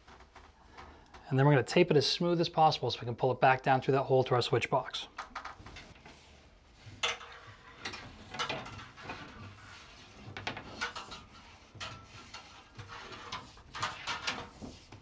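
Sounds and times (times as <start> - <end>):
cable scraping against drywall: 5.4 - 15.0.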